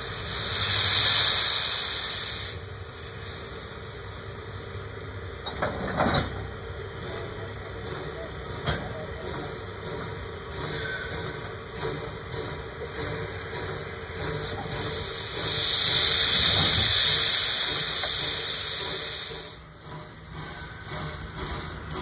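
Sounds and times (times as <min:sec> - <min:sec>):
loud pressure venting hiss: 0:00.0 - 0:05.0, 0:09.3 - 0:19.7.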